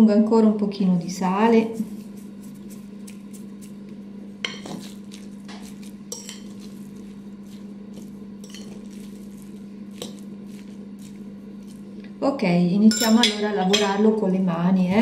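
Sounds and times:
steady low hum: 0.0 - 15.0
fork stirring ground meat: 1.7 - 12.2
fork clinking against bowl: 4.4 - 4.9, 5.6 - 6.7, 8.4 - 8.9, 12.9 - 14.0.

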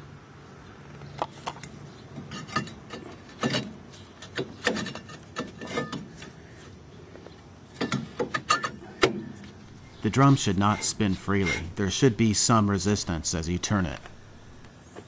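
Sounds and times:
brake drum scraping metal: 9.7 - 14.7.

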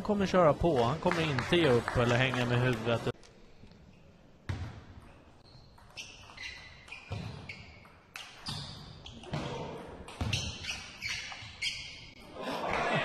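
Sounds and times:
table tennis ball hits and bounces: 4.5 - 11.4.

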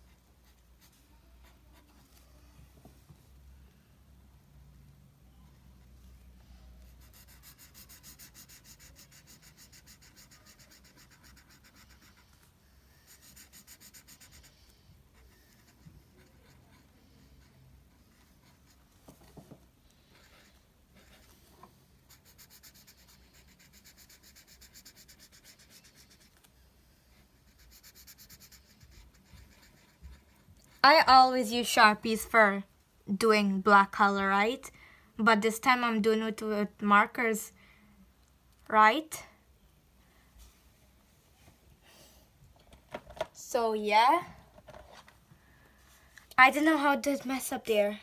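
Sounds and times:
marker scribbling on paper: 6.8 - 19.0, 22.0 - 31.2.

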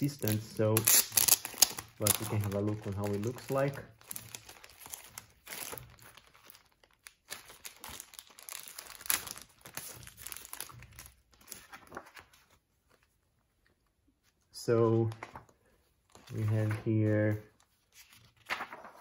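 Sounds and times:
plastic sleeve crinkling: 0.0 - 13.1
paper booklet rustling: 0.0 - 19.0.

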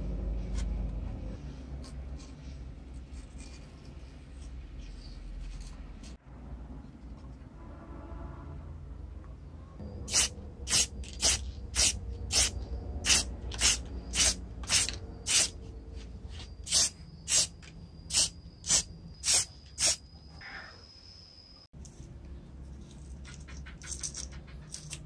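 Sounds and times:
spray paint can hissing: 10.1 - 15.6, 16.7 - 20.0.

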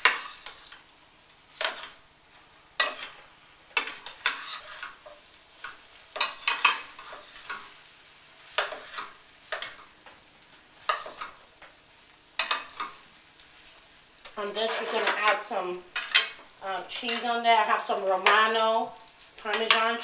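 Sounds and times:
metal tongs scraping skillet: 0.0 - 0.9, 1.5 - 2.0, 2.8 - 7.7, 8.5 - 9.9, 10.8 - 11.8, 12.4 - 13.0, 13.6 - 18.6, 19.2 - 20.0.

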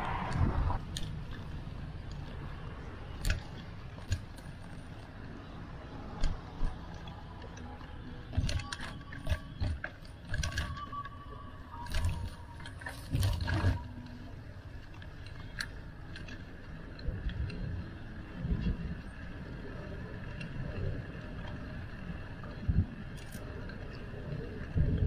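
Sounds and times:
low rumble: 0.0 - 1.5
bicycle clicking and rattling: 0.0 - 25.0.

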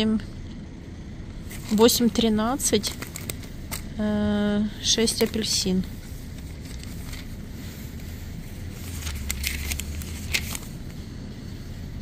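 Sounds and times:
low steady rumble: 0.0 - 12.0
plastic packaging crinkling: 8.7 - 10.8.

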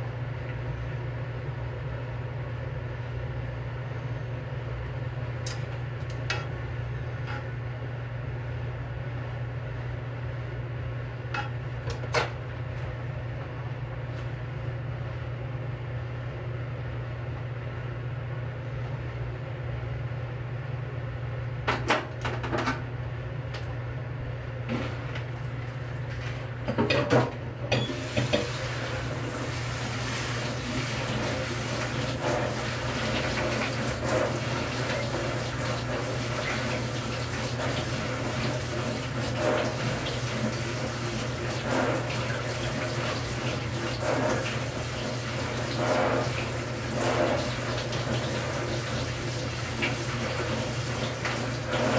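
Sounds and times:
water running into sink: 27.7 - 51.9.

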